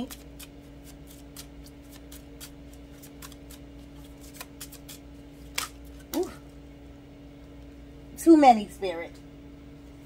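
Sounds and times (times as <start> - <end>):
cards being shuffled: 0.0 - 6.3
steady low hum: 0.0 - 10.0.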